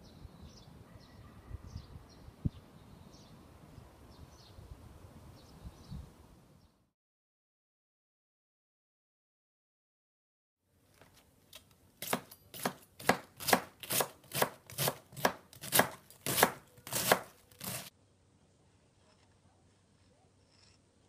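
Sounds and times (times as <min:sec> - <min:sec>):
knife chopping cabbage on board: 0:12.0 - 0:17.9.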